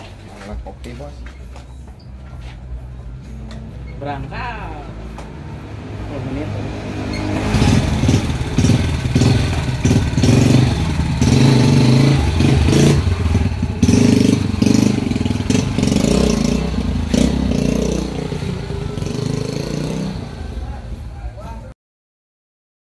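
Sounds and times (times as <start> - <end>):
motorcycle engine revving: 4.7 - 21.7.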